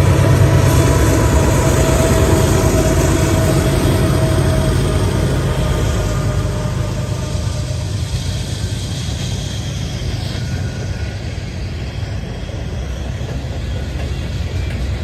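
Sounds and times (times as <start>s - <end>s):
diesel locomotive passing: 0.0s - 15.0s
freight cars wheel-on-rail noise: 0.0s - 15.0s.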